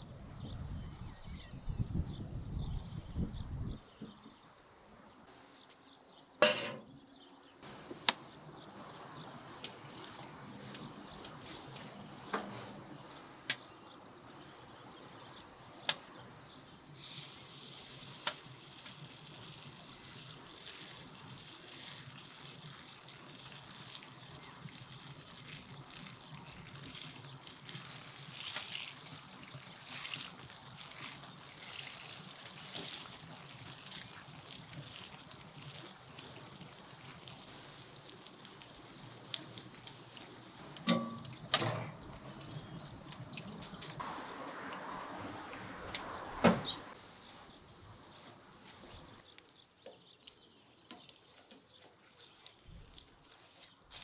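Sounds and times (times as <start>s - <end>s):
frying pan clanking on stove: 6.4s - 6.9s, 40.9s - 42.0s
batter sizzling in hot oil: 16.8s - 44.1s, 52.0s - 54.0s.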